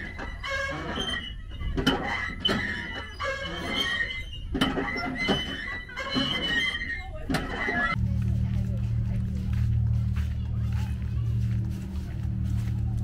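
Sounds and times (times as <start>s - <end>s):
wooden planks creaking and squealing: 0.0s - 8.0s
footsteps on wooden planks: 7.4s - 13.0s
low steady rumble: 7.9s - 13.0s.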